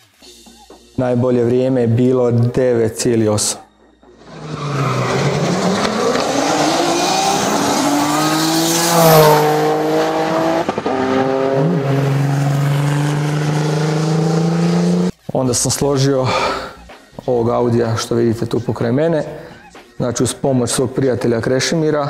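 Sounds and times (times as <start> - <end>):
car engine accelerating hard: 4.2 - 15.1.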